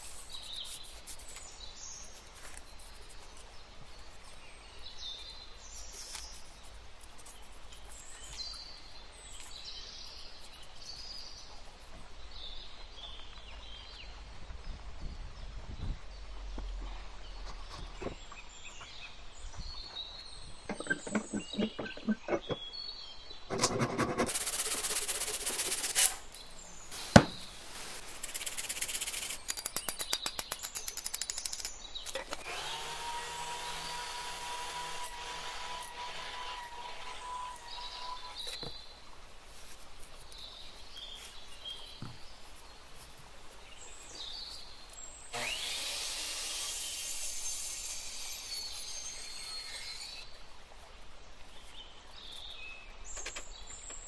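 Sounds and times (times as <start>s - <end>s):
sharp knock: 27.1s - 27.4s
hand saw cutting log: 32.3s - 38.8s, 45.3s - 50.2s
power miter saw cutting: 32.4s - 38.5s, 45.3s - 50.2s
bandsaw whining: 32.4s - 38.6s, 45.3s - 50.2s.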